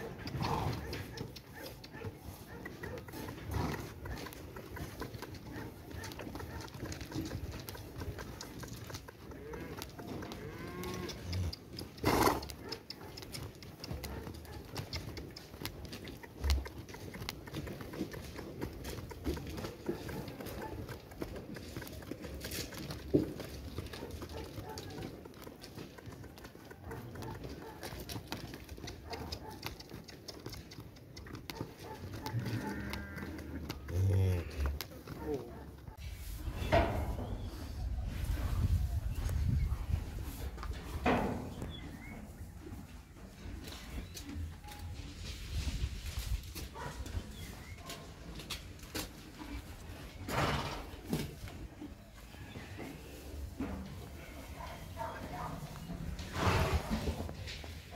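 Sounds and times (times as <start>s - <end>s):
horse hooves on stony dirt: 0.0s - 36.0s, 38.6s - 57.9s
cattle mooing: 9.3s - 11.6s, 32.3s - 34.8s.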